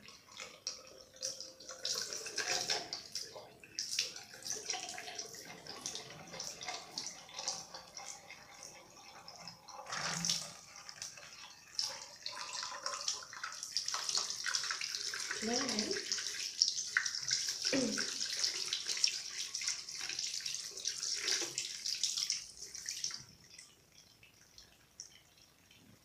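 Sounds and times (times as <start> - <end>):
water running from sink tap: 0.0 - 26.0
hands washing under water: 9.9 - 23.2.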